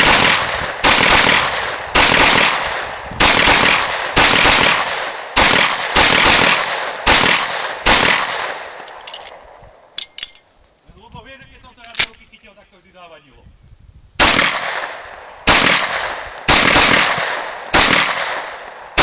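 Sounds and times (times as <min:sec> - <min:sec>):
pistol shots with echo: 0:00.0 - 0:08.9, 0:14.2 - 0:19.0.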